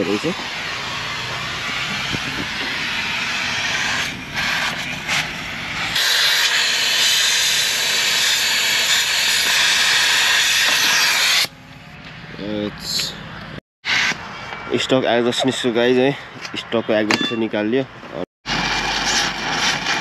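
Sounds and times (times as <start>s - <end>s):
welding torch flame hissing: 0.0s - 11.5s, 18.5s - 20.0s.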